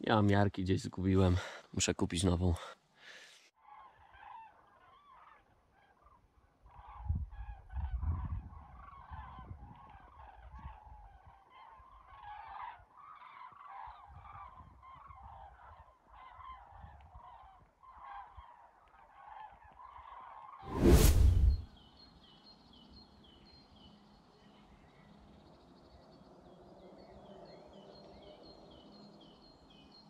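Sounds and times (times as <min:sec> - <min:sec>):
flock of birds honking: 0:08.6 - 0:18.6
low rumble: 0:20.7 - 0:21.6.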